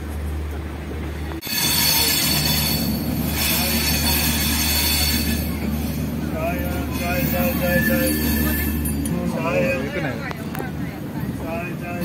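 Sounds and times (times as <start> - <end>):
train wheels rumbling on rails: 0.0 - 12.0
high steady squeal: 1.4 - 9.2.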